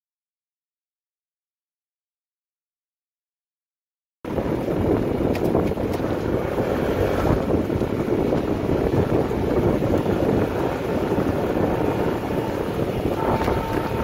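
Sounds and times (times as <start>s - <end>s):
boat moving through choppy water: 4.3s - 14.0s
outboard motor running: 4.3s - 14.0s
wind buffeting microphone: 4.3s - 14.0s.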